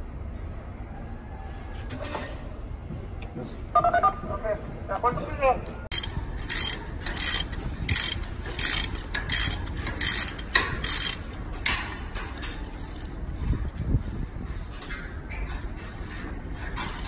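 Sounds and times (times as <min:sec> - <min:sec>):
ratchet wrench clicking: 0:05.9 - 0:13.8, 0:16.0 - 0:17.0.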